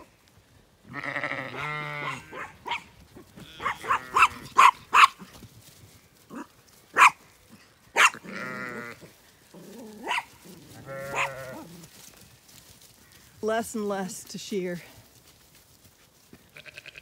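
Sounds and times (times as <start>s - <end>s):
sheep bleating: 0.9s - 4.7s, 8.1s - 9.2s, 9.9s - 11.8s, 16.5s - 17.0s.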